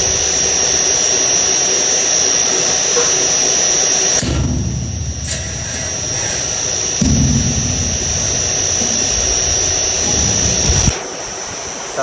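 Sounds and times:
high-pitched whine: 0.0s - 12.0s
microphone handling rumble: 4.3s - 11.0s.

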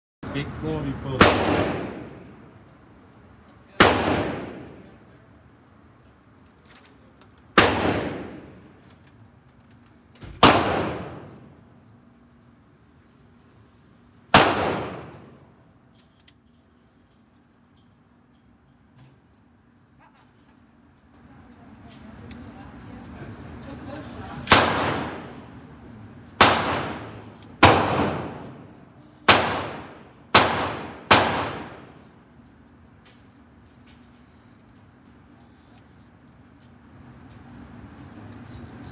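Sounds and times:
loud gunshots echoing indoors: 1.2s - 2.5s, 3.7s - 5.1s, 7.6s - 8.8s, 10.4s - 11.5s, 14.3s - 15.4s, 24.4s - 25.7s, 26.3s - 32.2s.

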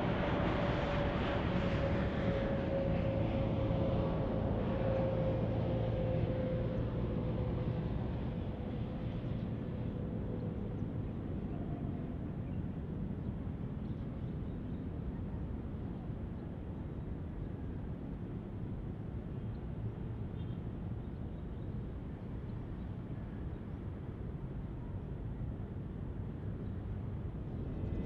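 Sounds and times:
distant jet airliner landing: 0.0s - 19.3s, 21.6s - 28.0s.

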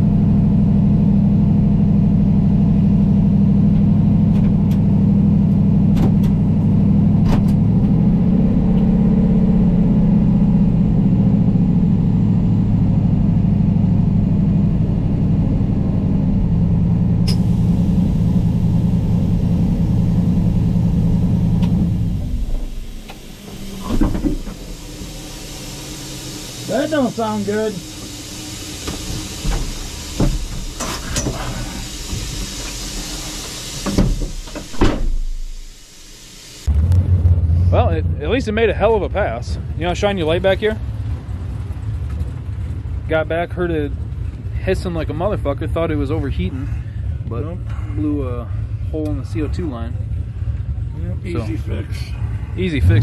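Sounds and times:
truck engine idling: 0.0s - 53.0s.

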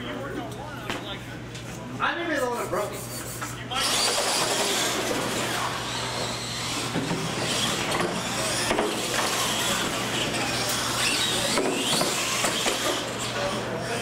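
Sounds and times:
toy truck motors whirring: 2.9s - 14.0s
motor whine rising and falling: 3.8s - 14.0s.

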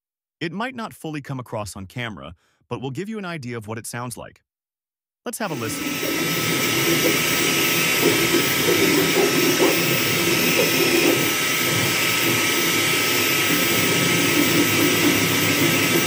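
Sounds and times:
stepper motors whirring: 5.5s - 16.0s
cooling fans hissing and whining: 5.6s - 16.0s.

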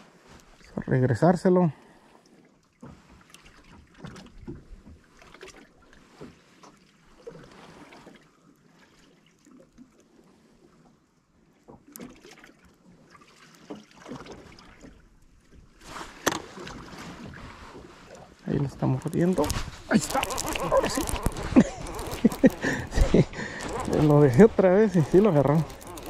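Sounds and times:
water lapping against hull: 0.0s - 26.0s
wind on microphone: 19.1s - 26.0s.

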